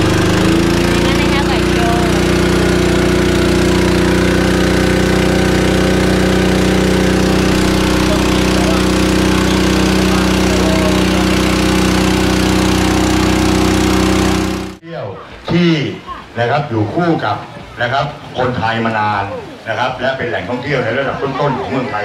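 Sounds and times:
boat engine running: 0.0 - 14.8.

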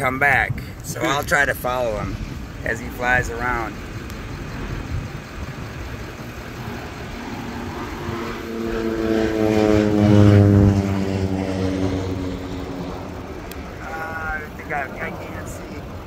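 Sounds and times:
propeller airplane passing low: 0.0 - 16.0.

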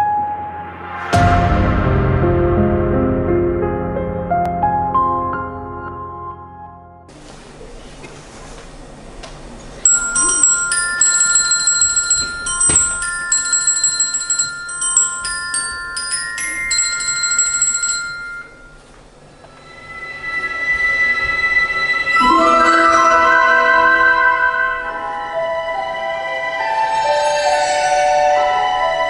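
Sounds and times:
glockenspiel-like ringing tones: 9.9 - 18.8, 22.1 - 29.0.

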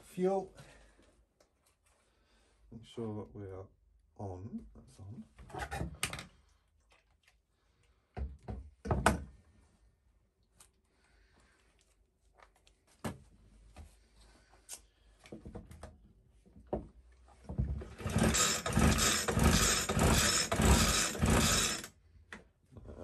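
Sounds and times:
recoil starter cranking: 17.9 - 21.9.

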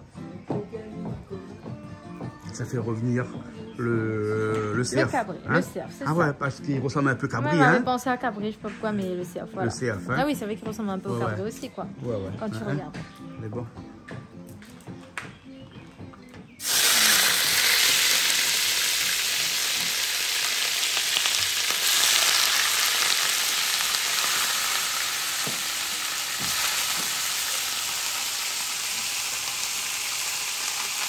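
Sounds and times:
meat sizzling in hot oil: 16.6 - 31.0.

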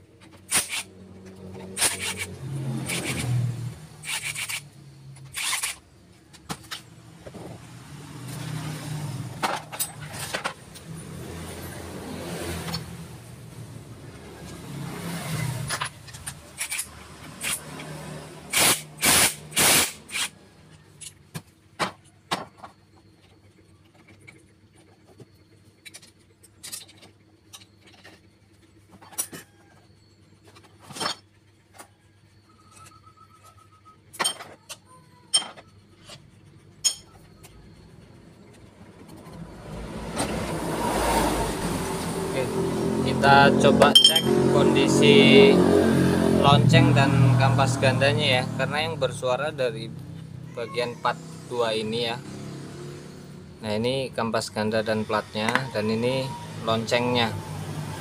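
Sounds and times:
metal clutch parts clinking: 25.8 - 28.4, 43.6 - 44.4.

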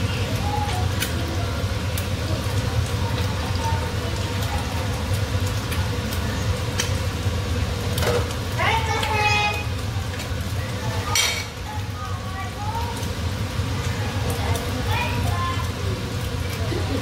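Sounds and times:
pot simmering with bubbling hiss: 0.0 - 17.0.

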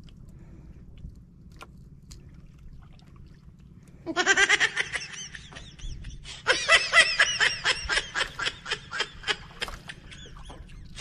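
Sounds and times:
person laughing: 4.1 - 11.0.

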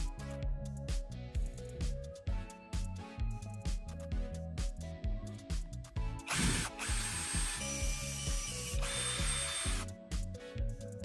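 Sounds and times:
background music with beat: 0.0 - 11.0
cordless drill boring metal: 6.2 - 9.9.

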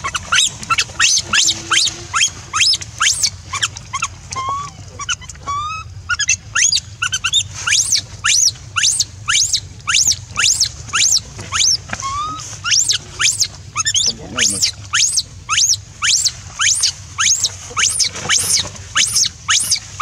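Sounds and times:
monkey low steady cries: 0.0 - 19.8
baby monkey screaming shrilly: 0.0 - 20.0.

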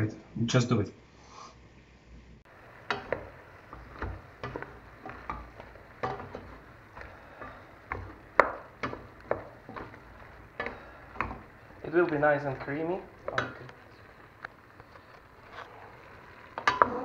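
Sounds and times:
wooden spoon knocking in pot: 2.5 - 14.3, 16.5 - 17.0.

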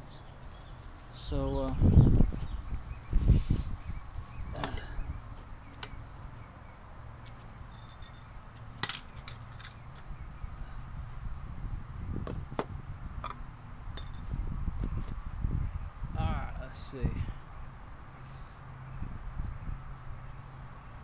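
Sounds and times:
high metallic ring: 7.7 - 8.4, 14.0 - 14.3
metal tools clinking on workbench: 7.7 - 9.8, 14.0 - 14.3.

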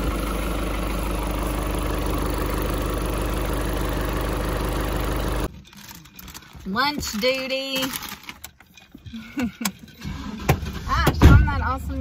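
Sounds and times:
diesel engine running: 0.0 - 5.5.

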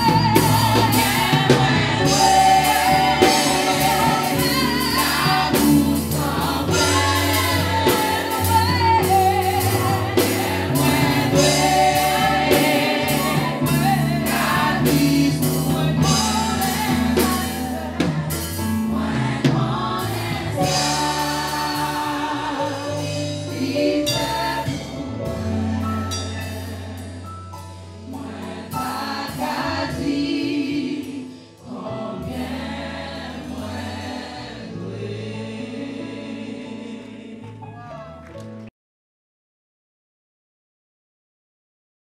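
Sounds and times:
bass line: 0.0 - 30.1
drums: 0.0 - 31.5
women singing gospel song: 0.0 - 37.6.

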